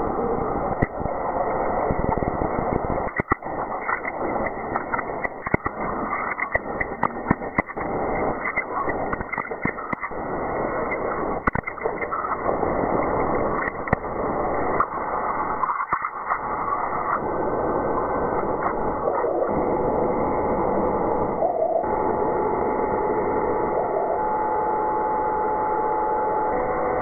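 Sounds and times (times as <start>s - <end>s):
sharp pops and crackles: 0.4s - 19.7s.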